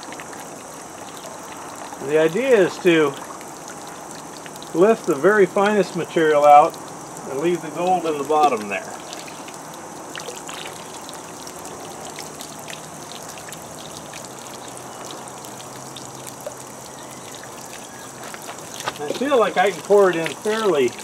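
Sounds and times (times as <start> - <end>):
muddy water trickling and splashing: 0.0 - 21.0.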